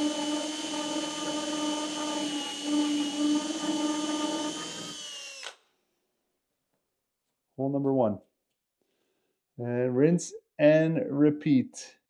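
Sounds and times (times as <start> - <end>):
hand drill boring into wood: 0.0 - 5.6.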